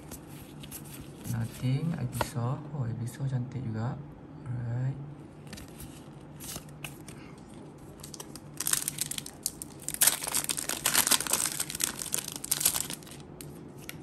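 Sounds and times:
foil wrapper crinkling and tearing: 7.9 - 14.0.

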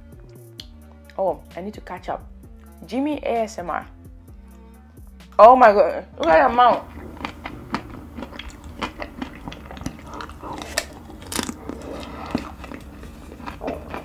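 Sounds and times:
chewing chocolate ice cream bars: 6.2 - 14.0.

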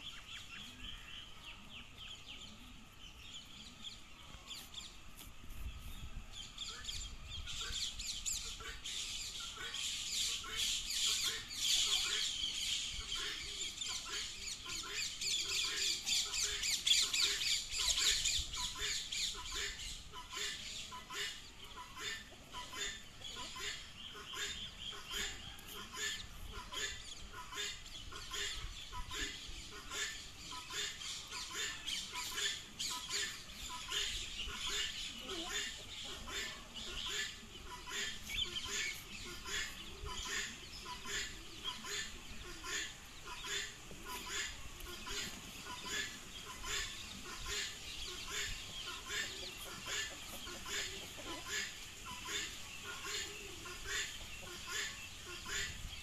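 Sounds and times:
poultry squawking: 7.5 - 56.0
turkey clucking: 13.0 - 55.9.

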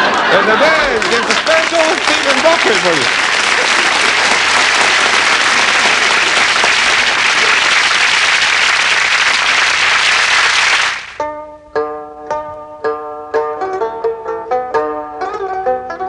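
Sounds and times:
audience applauding: 0.0 - 11.2
plucked-string tune: 11.2 - 16.0.

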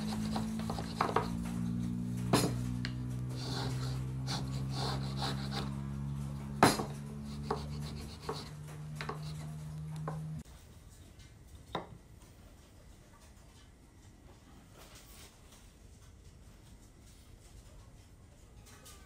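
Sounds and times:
marking gauge scratching wood: 0.0 - 10.4
steady low hum: 0.0 - 17.6.

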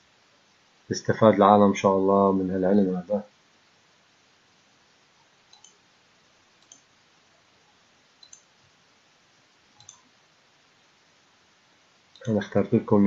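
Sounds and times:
faint computer mouse clicks: 5.5 - 5.8, 6.6 - 6.9, 8.2 - 8.5, 9.7 - 10.1, 12.1 - 12.4.

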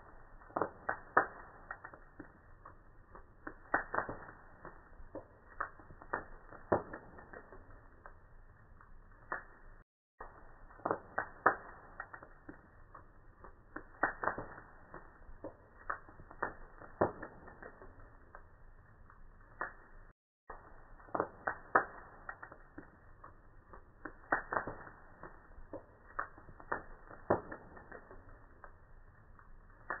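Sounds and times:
fire crackling and popping: 0.0 - 30.0.

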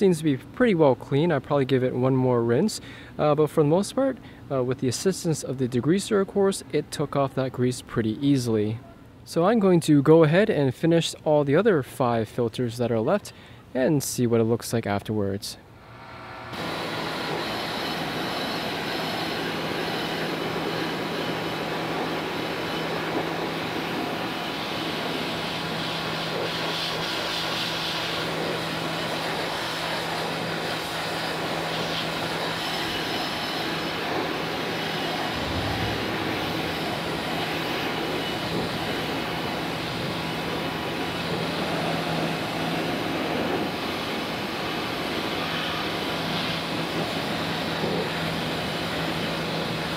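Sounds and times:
pressure washer motor hum: 35.2 - 39.9.

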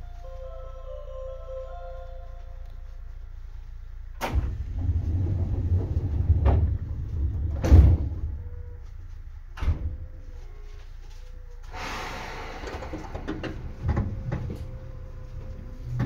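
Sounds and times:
low rumble: 2.4 - 10.6
sliding train doors knocking: 4.2 - 8.6, 12.5 - 14.7.

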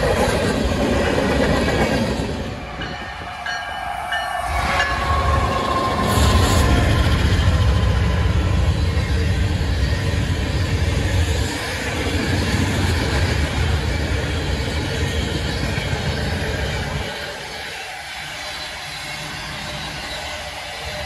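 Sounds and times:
train cars rolling: 0.0 - 21.0
locomotive engine rumble: 2.2 - 17.4.

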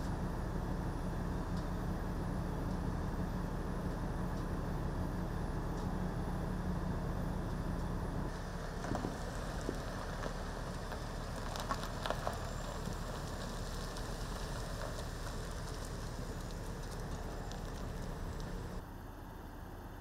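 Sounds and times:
vehicle engine idling: 0.0 - 20.0
light clicks and crackles: 8.8 - 18.8.

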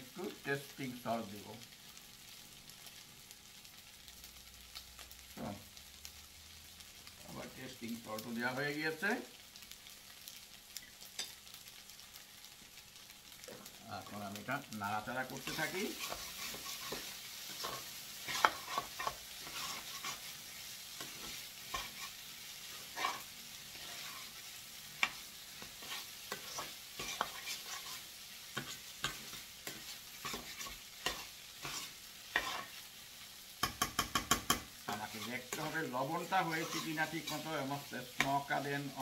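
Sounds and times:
faint sizzle: 0.0 - 39.0
spatula scraping frying pan: 15.3 - 33.0, 33.6 - 39.0.

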